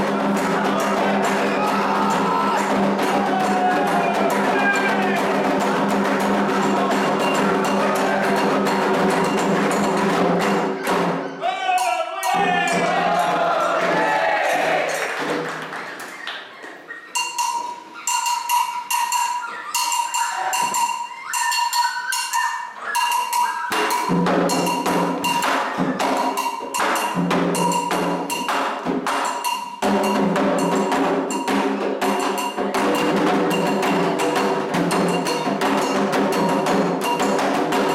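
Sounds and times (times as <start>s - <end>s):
hand drums: 0.0s - 14.2s, 17.2s - 37.9s
metal bell struck in pattern: 17.2s - 25.6s.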